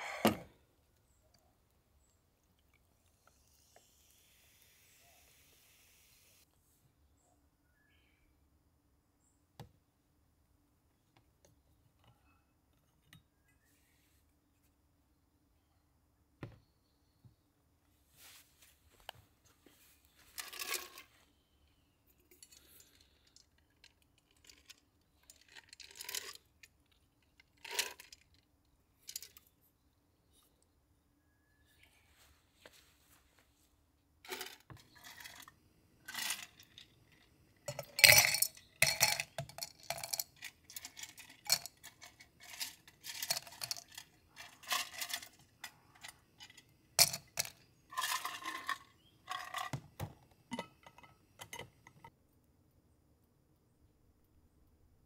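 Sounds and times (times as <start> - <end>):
clinking and rattling: 36.1 - 37.0, 37.7 - 52.1.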